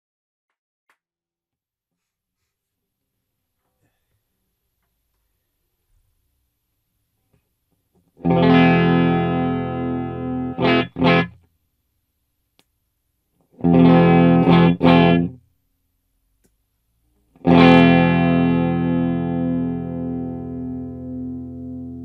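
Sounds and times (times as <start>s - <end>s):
distorted electric guitar chords: 8.2s - 11.3s, 13.6s - 15.4s, 17.4s - 22.0s.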